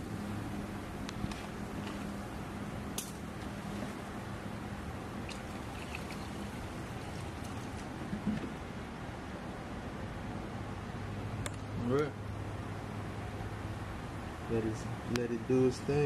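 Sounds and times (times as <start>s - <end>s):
steady low hum: 0.0s - 16.0s
liquid pouring and splashing: 5.2s - 8.3s.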